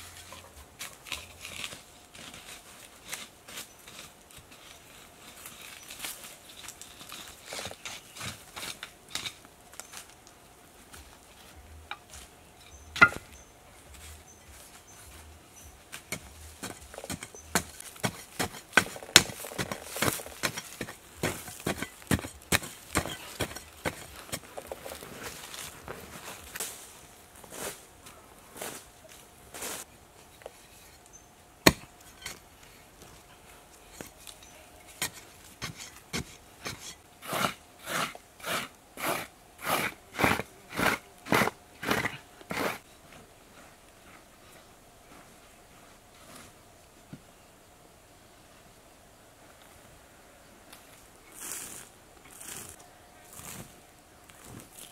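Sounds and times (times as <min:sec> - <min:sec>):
hoe chopping hard earth: 0:16.1 - 0:25.0, 0:31.6 - 0:32.4, 0:35.0 - 0:42.8.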